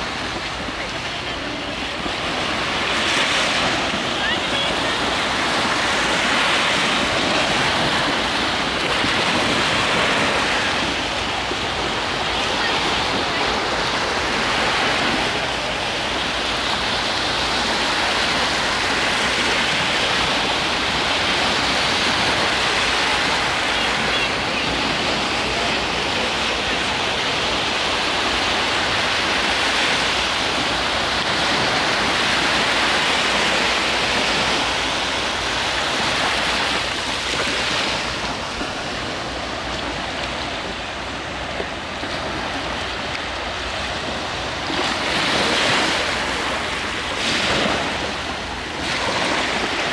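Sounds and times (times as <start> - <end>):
waves breaking on sandy beach: 0.0 - 49.9.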